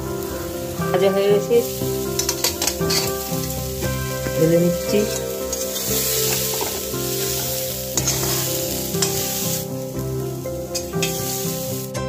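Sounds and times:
food sizzling in pan: 0:00.0 - 0:12.0
spatula scraping pan: 0:01.6 - 0:09.8, 0:10.7 - 0:11.7.

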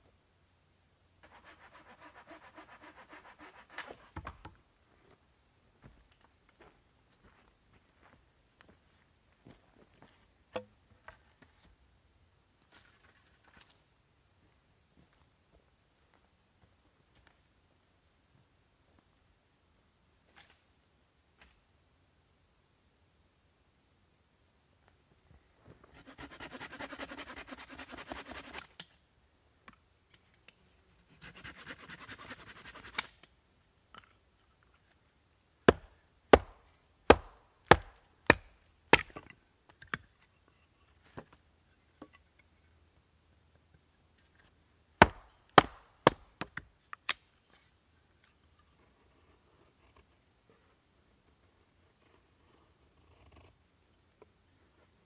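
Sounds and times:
quick rasping strokes: 0:01.2 - 0:04.1, 0:25.9 - 0:28.7.

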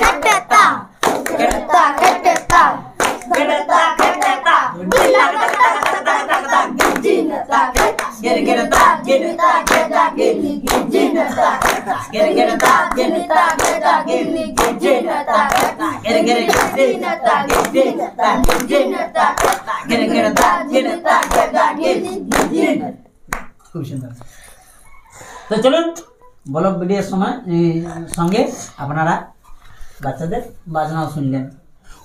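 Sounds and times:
hands clapping: 0:00.0 - 0:10.0, 0:10.6 - 0:18.8, 0:19.4 - 0:22.6, 0:23.3 - 0:23.6
children chanting in unison: 0:00.0 - 0:23.0.

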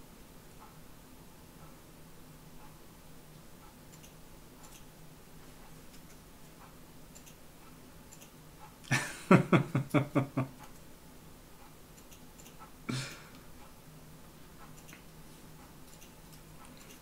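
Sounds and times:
man laughing: 0:08.9 - 0:10.6, 0:12.9 - 0:13.3.

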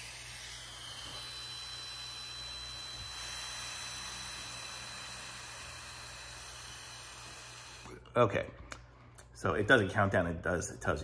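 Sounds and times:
breath blowing into breathalyzer: 0:00.0 - 0:08.1.

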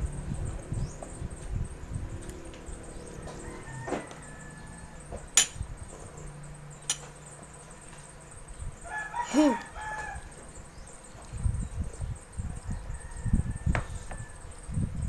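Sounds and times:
rooster crowing: 0:02.9 - 0:05.2, 0:08.8 - 0:10.5, 0:12.6 - 0:14.5.

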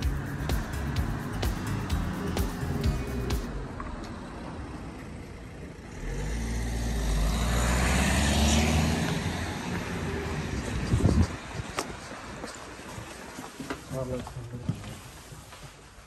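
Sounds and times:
car driving past: 0:00.0 - 0:11.6.

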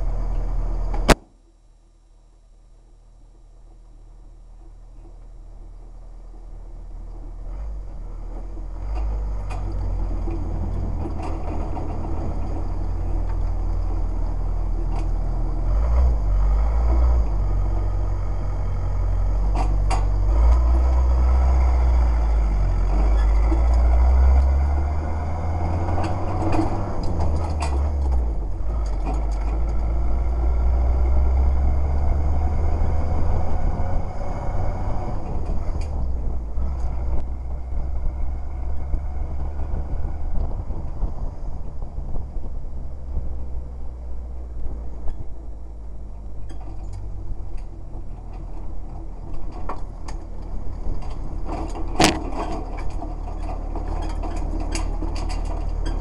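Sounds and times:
small vehicle engine running: 0:04.8 - 0:56.0
metal body rattling: 0:46.4 - 0:56.0.

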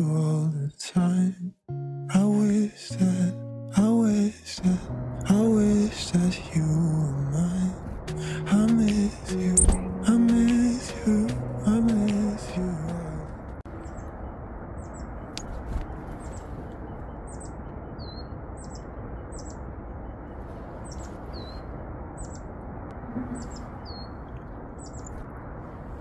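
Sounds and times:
steady rushing background noise: 0:05.2 - 0:26.0
tits calling: 0:13.7 - 0:14.2, 0:14.8 - 0:19.7, 0:20.3 - 0:22.5, 0:23.2 - 0:25.2.

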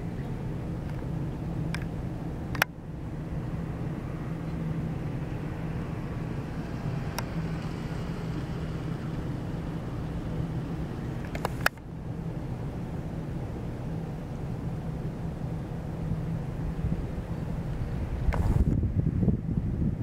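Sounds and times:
low mechanical hum: 0:00.0 - 0:20.0.

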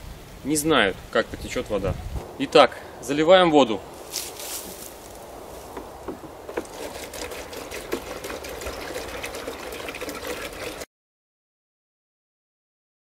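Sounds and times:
water pouring into plastic bottle: 0:06.5 - 0:10.9.

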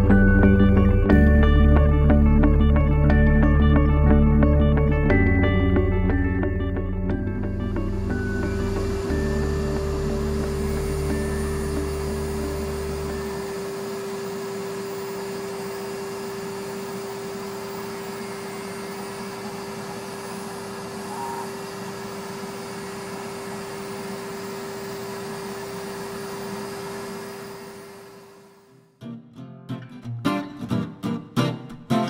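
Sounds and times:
grinding wheel humming: 0:03.1 - 0:28.7.

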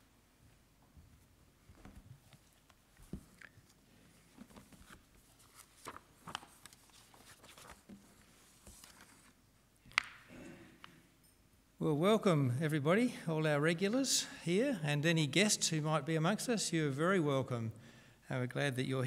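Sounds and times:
papers and book rustling: 0:01.7 - 0:10.2.

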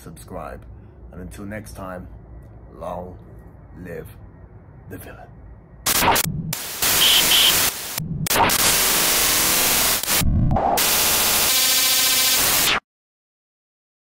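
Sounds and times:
electronic buzzing: 0:05.8 - 0:12.8
tv static white noise bursts: 0:05.8 - 0:12.8.

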